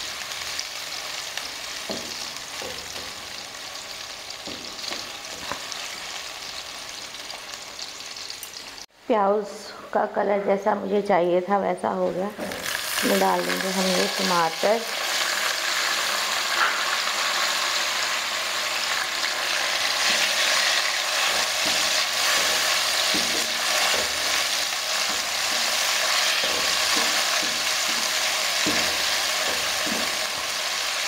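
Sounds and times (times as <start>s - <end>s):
tomatoes sizzling in hot oil: 0.0s - 8.9s, 12.4s - 31.0s.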